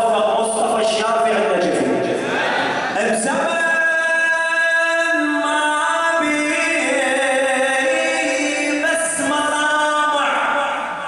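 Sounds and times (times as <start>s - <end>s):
person chanting into a microphone: 3.0s - 11.0s.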